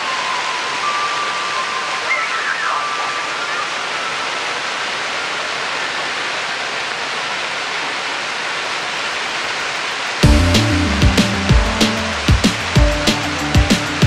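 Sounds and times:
fountain water jets splashing: 0.0 - 14.0
loud music with heavy beat: 10.2 - 14.0.

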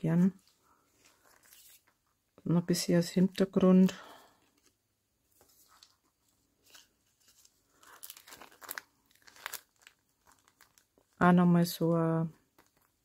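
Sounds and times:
cellophane bag crinkling: 1.0 - 2.0, 6.6 - 13.0.

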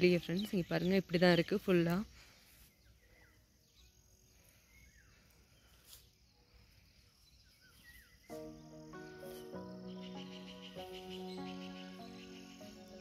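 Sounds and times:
faint bird chirps: 0.0 - 13.0
background music: 8.3 - 13.0.

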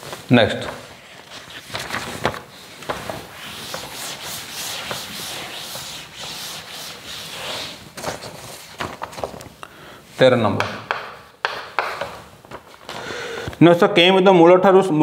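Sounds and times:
cloth scrubbing chalkboard: 0.6 - 8.8.

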